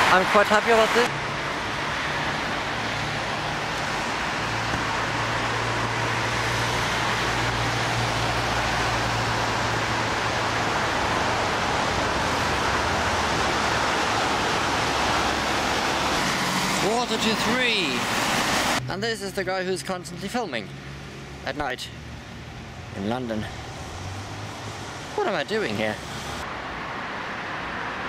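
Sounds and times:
road traffic: 0.0s - 28.0s
rain hiss: 23.6s - 26.4s.

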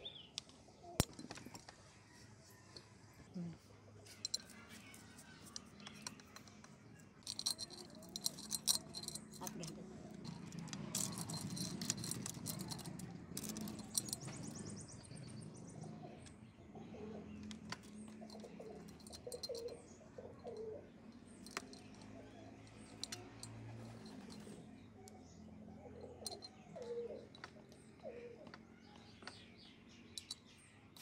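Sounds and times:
metal chain clinking and rattling: 4.1s - 15.4s, 17.8s - 25.2s, 26.0s - 28.2s, 29.6s - 31.0s
dove cooing: 15.9s - 17.4s, 18.2s - 20.9s, 25.8s - 28.5s.

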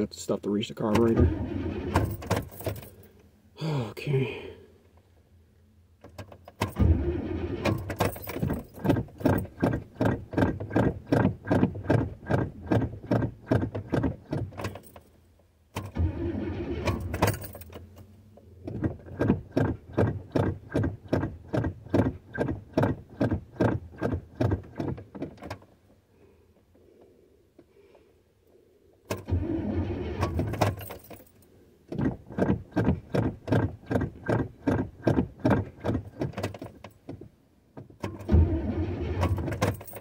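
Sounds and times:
car engine cranking by starter: 0.8s - 3.1s, 6.1s - 15.0s, 15.7s - 25.6s, 29.0s - 37.0s, 38.0s - 40.0s.

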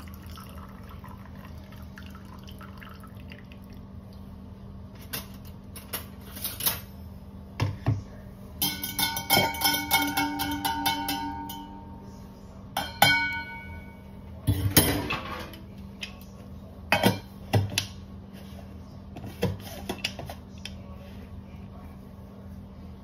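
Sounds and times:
spoon clinking in steel tumbler: 8.6s - 11.8s.

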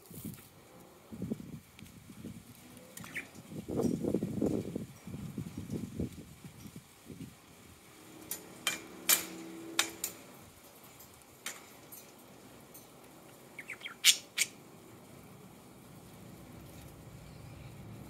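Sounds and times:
budgerigars squawking and chirping: 13.6s - 14.6s.

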